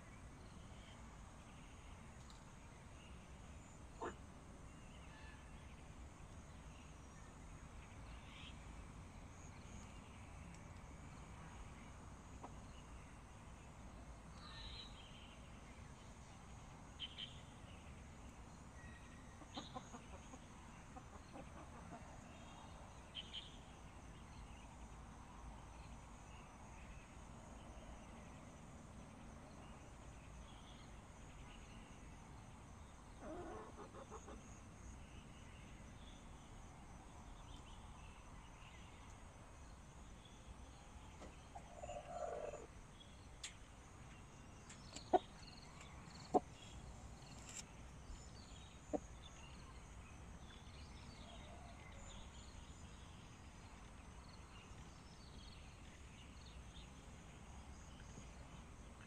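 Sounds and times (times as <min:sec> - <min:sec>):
hens clucking and calling: 0:33.2 - 0:34.4.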